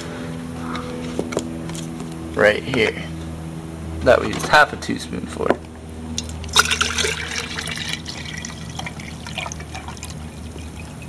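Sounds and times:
water trickling into glass jar: 0:06.5 - 0:11.0.

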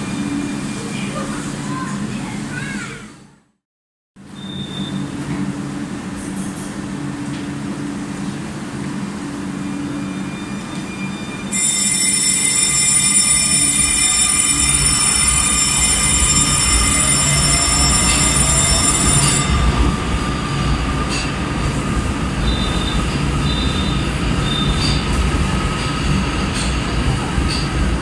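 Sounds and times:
wheels rumbling on rail: 0:04.8 - 0:28.0
traction motor whine: 0:12.5 - 0:24.6
high-pitched whine: 0:12.6 - 0:26.7.

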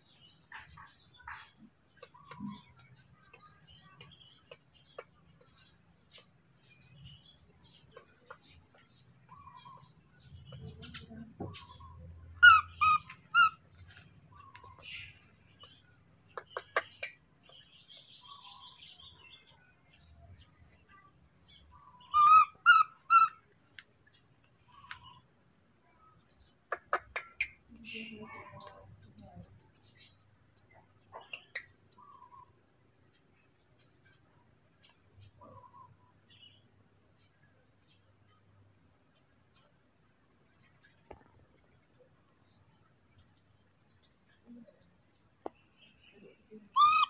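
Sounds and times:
high-pitched animal calls: 0:12.4 - 0:13.6, 0:22.0 - 0:23.4, 0:46.6 - 0:47.0.

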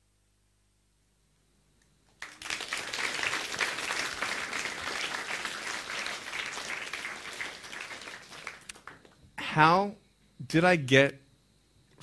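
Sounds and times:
audience applause: 0:02.2 - 0:09.1.

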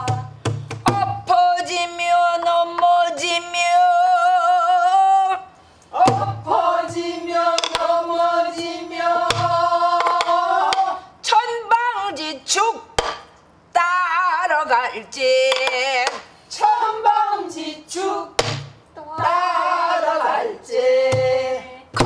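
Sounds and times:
woman singing with vibrato: 0:00.0 - 0:12.9, 0:13.7 - 0:22.0
drum stick strokes: 0:07.6 - 0:07.9, 0:09.3 - 0:10.9.

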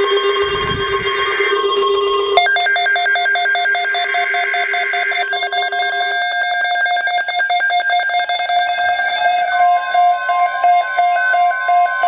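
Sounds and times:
steady alarm tones: 0:00.0 - 0:12.0
rapid pulsing electronic beep: 0:02.4 - 0:12.0.

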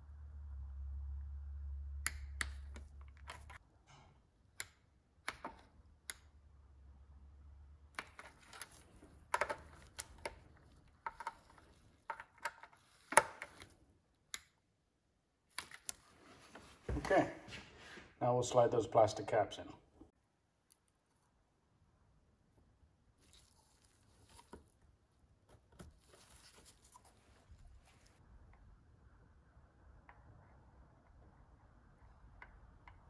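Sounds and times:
low hum: 0:00.0 - 0:03.3.

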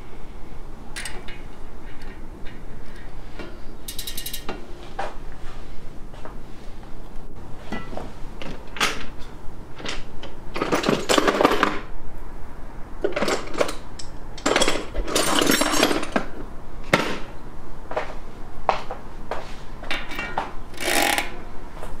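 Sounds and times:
metallic clicking and clattering: 0:01.0 - 0:04.6.

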